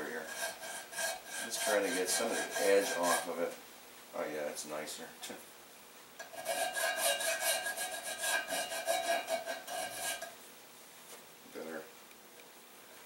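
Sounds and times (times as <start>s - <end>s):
file rasping on metal: 0.0s - 3.4s, 6.2s - 10.4s.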